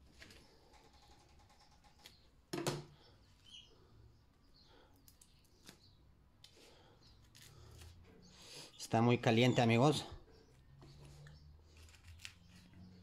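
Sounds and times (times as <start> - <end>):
skin peeling rustle: 7.2 - 8.1, 11.0 - 12.8.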